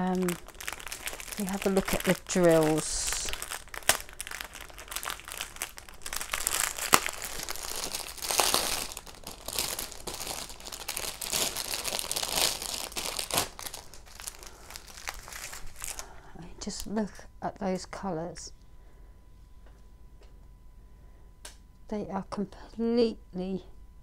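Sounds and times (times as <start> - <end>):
plastic bags crinkling: 0.0 - 16.9.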